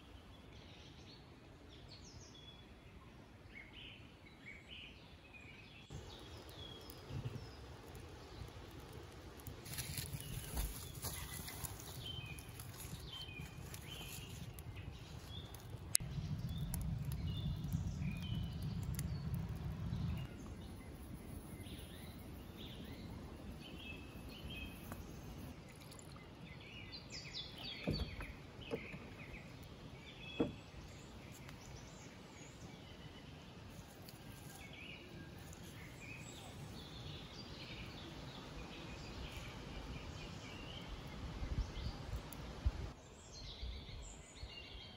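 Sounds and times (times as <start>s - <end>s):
small birds chirping: 3.5s - 44.9s
low rumble: 14.9s - 23.6s.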